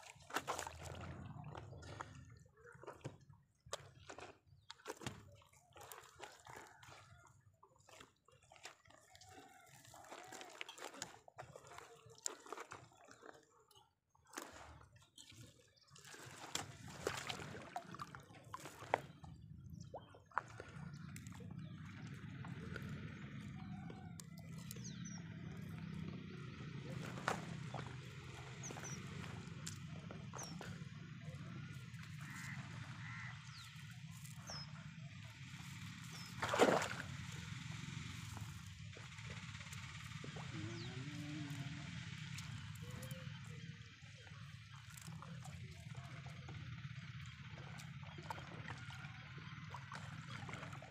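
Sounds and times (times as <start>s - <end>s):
water splashing and dripping: 0.0s - 2.2s, 2.8s - 24.9s, 35.2s - 37.5s, 44.6s - 50.9s
faint dripping water: 16.5s - 26.1s.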